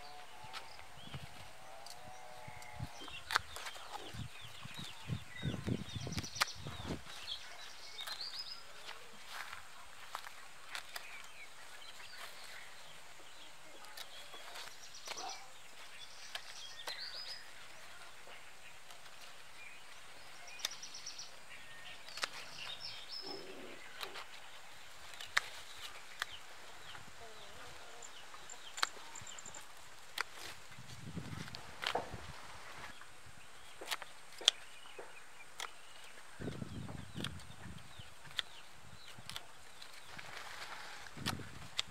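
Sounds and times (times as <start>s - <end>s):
birds chirping: 0.0s - 41.9s
steady outdoor hiss: 0.0s - 41.9s
pruning shears snipping: 2.6s - 4.1s, 7.9s - 11.4s, 16.0s - 17.4s, 20.4s - 21.0s, 22.0s - 22.8s, 25.0s - 26.4s, 28.6s - 30.7s, 31.4s - 32.2s, 33.7s - 37.5s, 38.2s - 41.9s.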